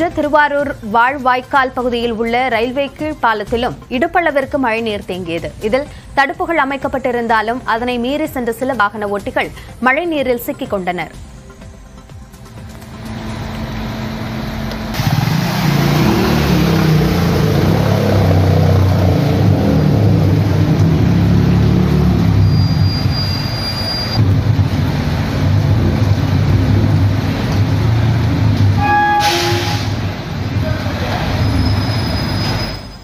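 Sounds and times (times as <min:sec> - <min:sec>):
vehicle engine rumbling: 0:12.3 - 0:33.0
pitched tones: 0:28.8 - 0:30.0.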